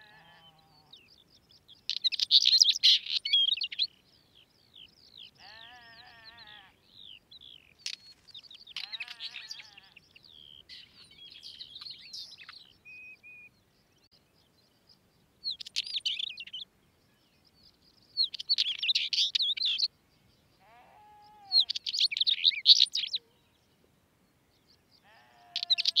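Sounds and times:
bird chattering song: 1.8s - 4.0s, 4.6s - 13.6s, 15.5s - 16.7s, 18.1s - 19.9s, 21.5s - 23.2s, 25.1s - 26.0s.

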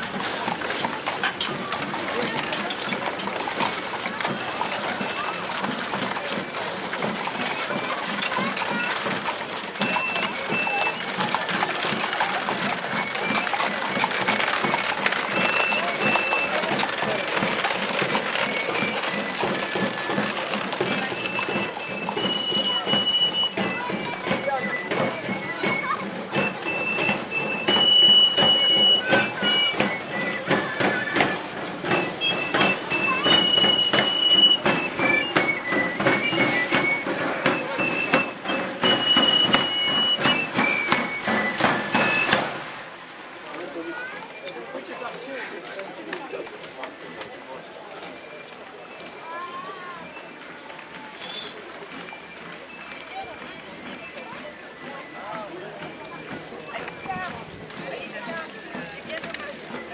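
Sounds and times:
shrill pipes playing melody: 0.0s - 42.8s, 48.0s - 59.9s
tambourin drums beating: 0.0s - 42.8s
crowd chatter: 0.0s - 59.9s
hooves and wheels clattering: 0.0s - 59.9s.

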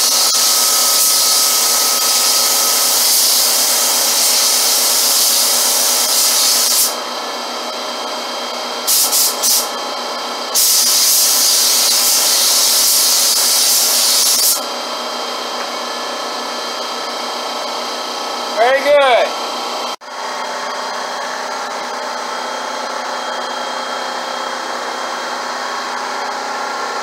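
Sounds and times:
spray gun hissing: 0.0s - 7.0s, 8.9s - 9.7s, 10.6s - 14.6s.

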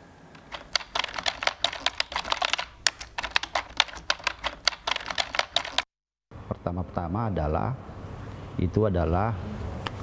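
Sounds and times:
rapid keystroke clicks: 0.4s - 5.9s.

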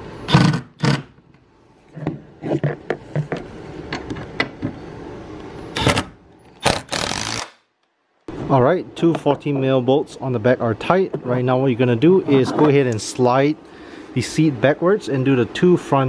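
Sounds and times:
rasping bursts: 6.6s - 7.6s.

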